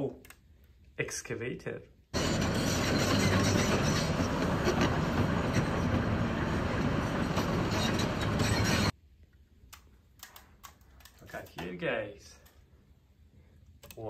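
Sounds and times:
excavator engine and machinery: 2.2s - 9.0s.

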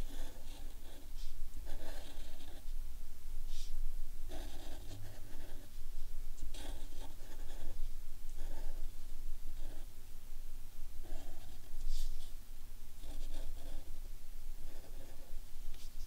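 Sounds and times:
marker scratching on paper: 0.0s - 2.7s, 4.3s - 5.8s, 6.5s - 7.8s, 14.6s - 16.0s.

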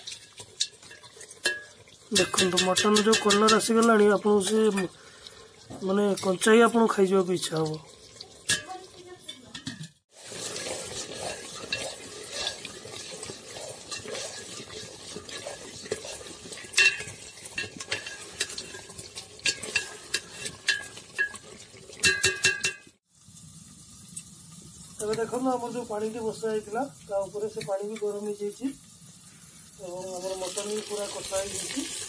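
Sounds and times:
metal spoon scraping a pot: 0.0s - 23.0s
meat sizzling in a pot: 0.0s - 32.0s.

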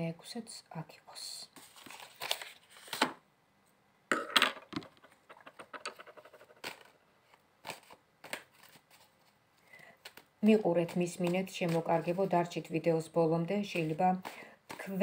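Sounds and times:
cards being shuffled: 1.6s - 3.2s, 4.3s - 9.4s, 10.0s - 12.8s, 13.5s - 15.0s.

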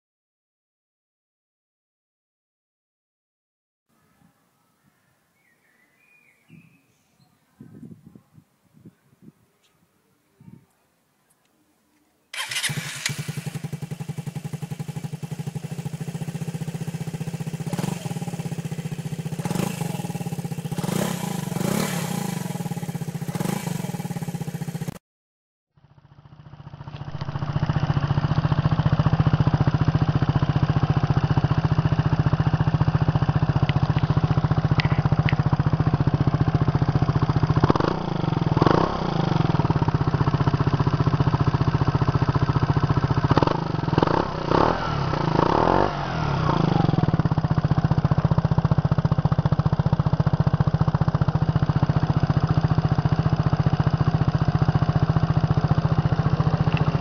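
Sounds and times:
short sharp exhaust sounds: 12.3s - 14.2s
scooter engine idling: 12.4s - 25.0s, 25.8s - 57.0s.

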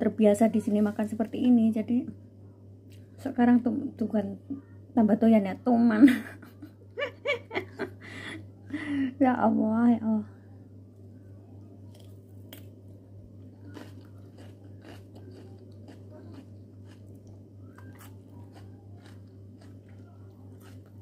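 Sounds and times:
low hum: 0.0s - 21.0s
person chewing salad: 11.9s - 12.7s, 13.4s - 21.0s.

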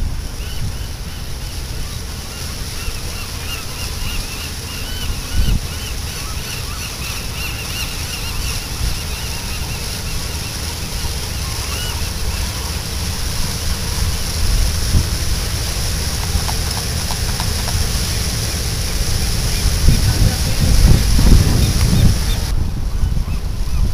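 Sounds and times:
wind rumble on microphone: 0.0s - 23.9s
sea lions barking: 15.3s - 22.5s.

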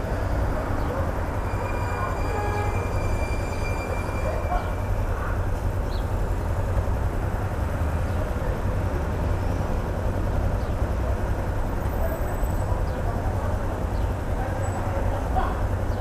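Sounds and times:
city traffic passing: 0.0s - 16.0s
motorcycle engine idling: 4.1s - 16.0s.

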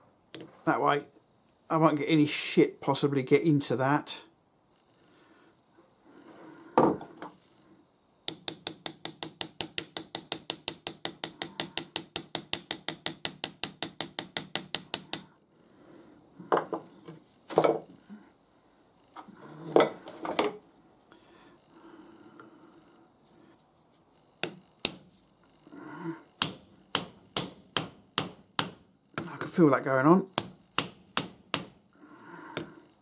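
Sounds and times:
hammer tapping metal: 8.3s - 15.3s, 24.4s - 25.1s, 26.4s - 29.6s, 30.3s - 32.0s.

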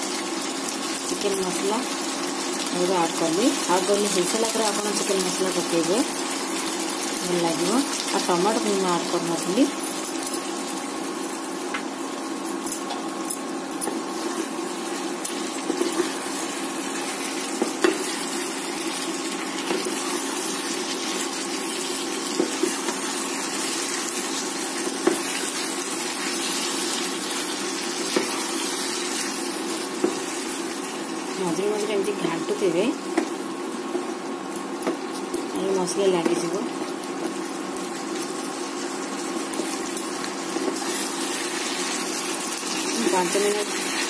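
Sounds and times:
curry sizzling in a pan: 0.0s - 44.0s.

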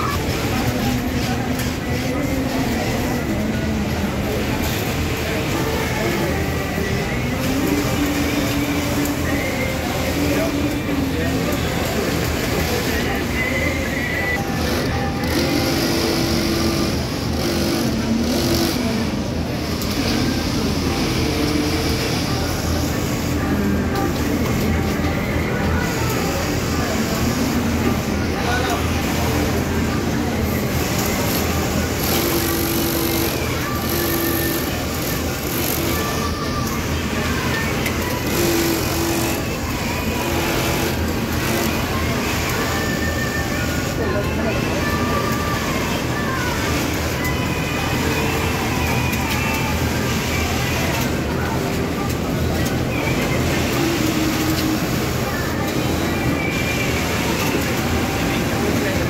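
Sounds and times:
din of running machines: 0.0s - 59.0s
industrial sewing machine stitching: 14.4s - 20.4s, 30.7s - 36.3s, 37.0s - 42.7s.

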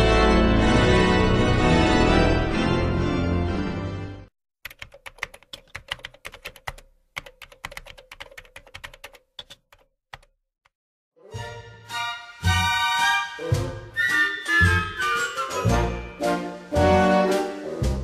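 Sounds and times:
music: 0.0s - 4.3s, 11.1s - 18.0s
keyboard key clicks: 4.6s - 10.3s.

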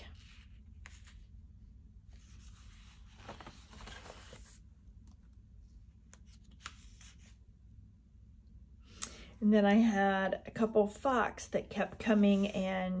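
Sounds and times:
paper page turning: 2.1s - 4.6s, 6.0s - 7.4s.

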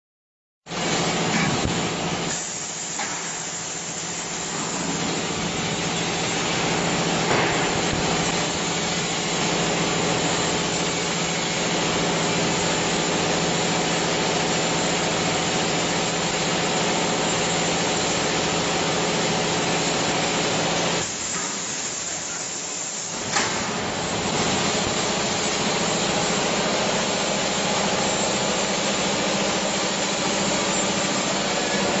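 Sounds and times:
machinery hiss: 0.7s - 12.9s, 20.2s - 32.0s
conveyor machinery hum: 0.7s - 32.0s.

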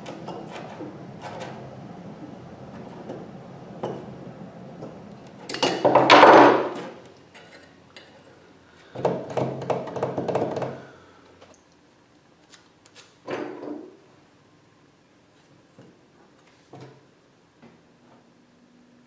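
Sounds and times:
metal parts knocking on workbench: 5.5s - 6.9s.

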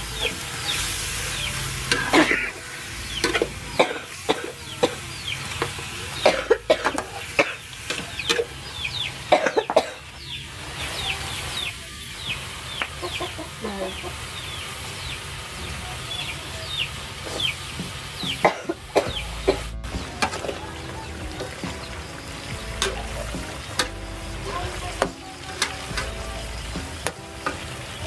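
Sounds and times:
chicks peeping: 0.1s - 7.3s, 8.0s - 28.0s.

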